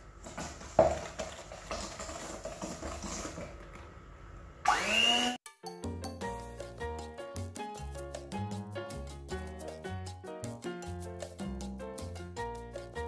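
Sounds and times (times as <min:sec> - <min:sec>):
electric hand mixer beating: 0:04.6 - 0:05.4
upbeat music with a beat: 0:05.5 - 0:13.0.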